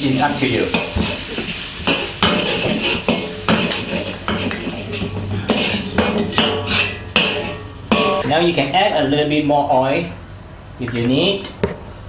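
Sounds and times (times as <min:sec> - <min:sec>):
onion sizzling in oil: 0:00.0 - 0:08.3
spatula scraping a wok: 0:00.3 - 0:08.3.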